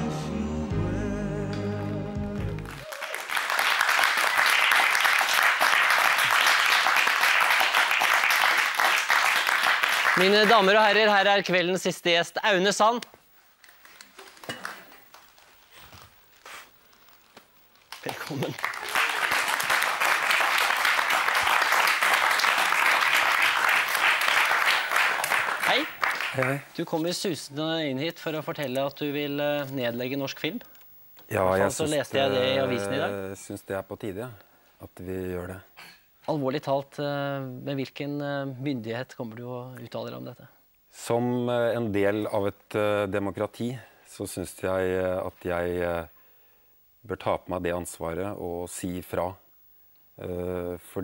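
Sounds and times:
music with singing voice: 0.0 - 2.8
studio audience applause: 2.4 - 11.3, 17.9 - 26.8.

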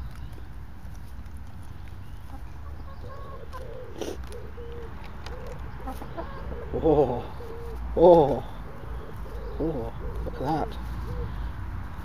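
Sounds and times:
hens clucking: 2.1 - 11.6.

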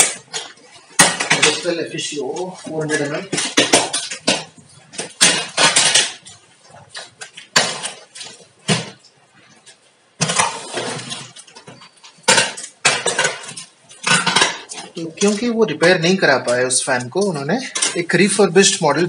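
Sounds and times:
plastic-wrapped box rustling: 9.6 - 16.6.

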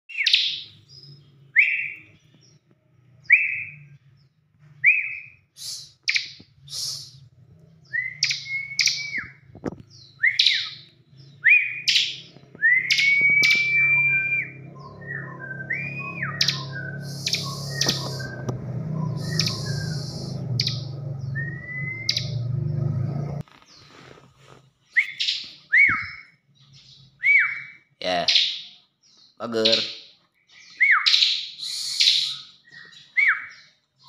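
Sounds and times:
bird whistled calls: 0.1 - 2.2, 3.2 - 4.0, 4.8 - 7.3, 7.9 - 22.5, 24.9 - 26.4, 27.1 - 28.7, 30.6 - 33.7.

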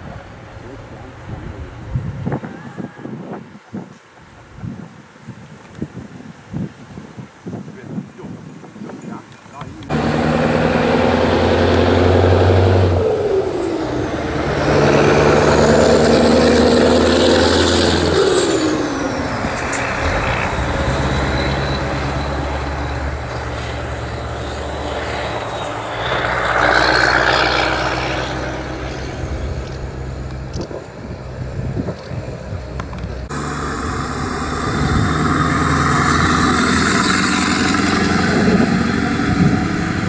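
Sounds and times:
diesel race trucks passing: 9.8 - 40.0.

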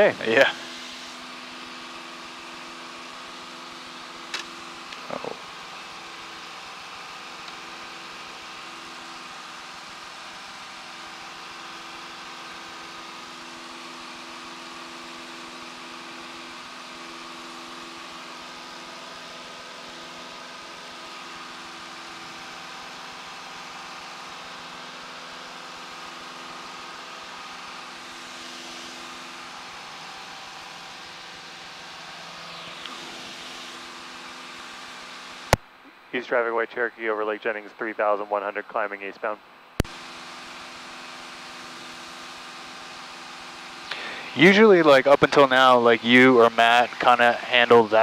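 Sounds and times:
light aircraft engine drone: 0.0 - 48.0.

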